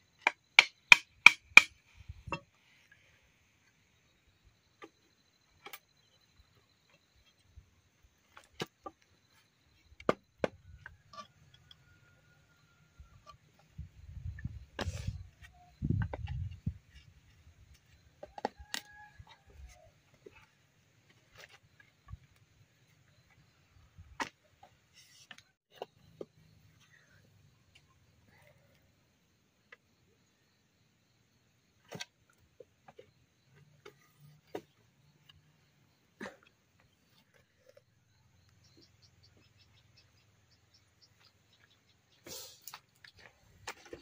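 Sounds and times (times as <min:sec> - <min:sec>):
machete chopping bamboo: 0:00.2 - 0:01.8.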